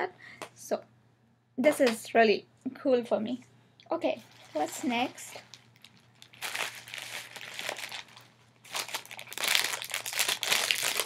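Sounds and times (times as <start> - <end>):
packing material crinkling: 4.2 - 11.0.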